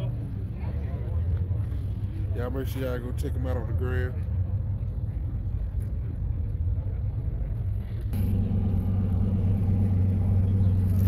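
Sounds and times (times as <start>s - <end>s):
car engine idling: 3.5s - 11.0s.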